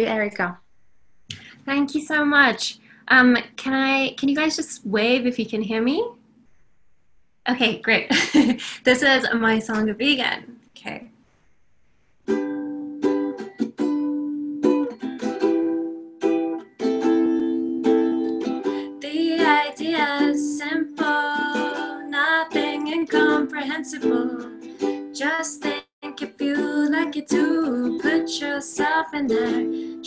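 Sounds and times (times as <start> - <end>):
ukulele strumming chords: 12.3 - 30.0
woman singing: 17.4 - 30.0.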